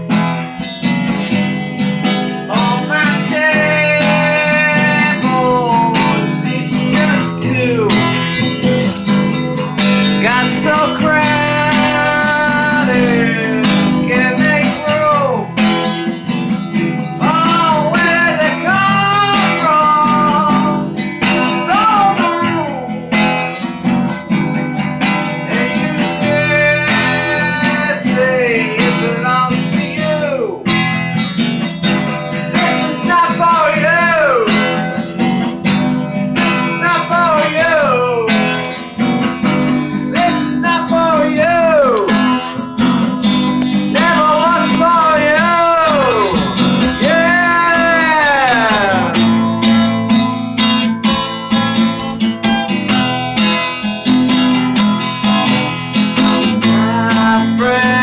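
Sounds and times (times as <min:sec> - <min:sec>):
guitar strumming chords: 0:00.0 - 0:58.0
person singing: 0:02.0 - 0:09.0, 0:09.8 - 0:15.6, 0:17.2 - 0:23.3, 0:25.2 - 0:30.7, 0:32.4 - 0:38.9, 0:39.8 - 0:49.7, 0:56.2 - 0:58.0.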